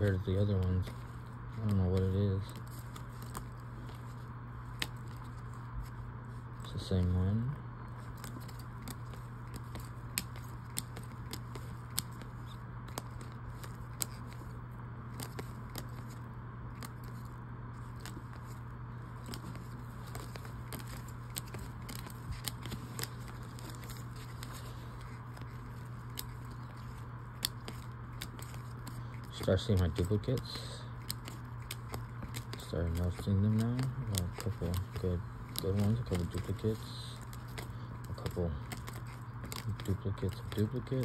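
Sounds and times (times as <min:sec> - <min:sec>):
low hum: 0:00.0 - 0:41.0
trading cards clicking and scraping: 0:00.0 - 0:41.0.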